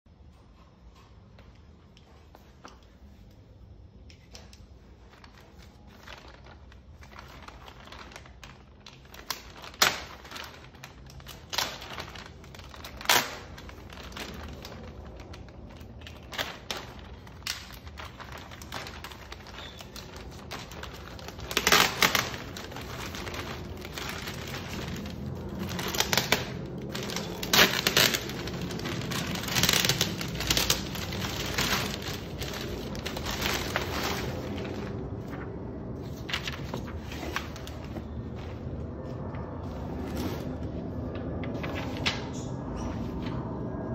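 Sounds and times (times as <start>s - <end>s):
plastic bag crinkling: 4.8s - 38.3s.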